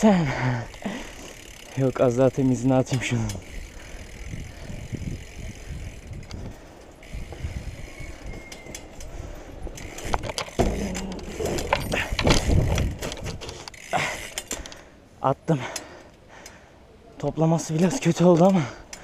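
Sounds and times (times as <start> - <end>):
bike rattling: 0.0 - 19.0
bike tyres rolling over paving: 0.2 - 14.9
bike knocking on wooden bench: 10.1 - 13.4.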